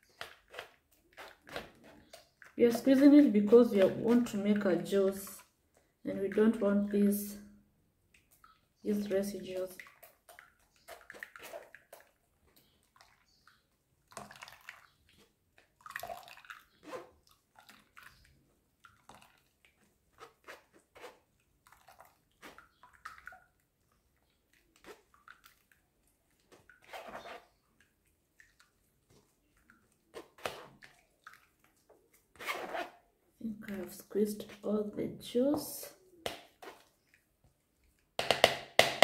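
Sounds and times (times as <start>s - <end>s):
wet pulp squelches: 8.1s - 38.2s
spoon scraping bowl: 26.8s - 27.6s.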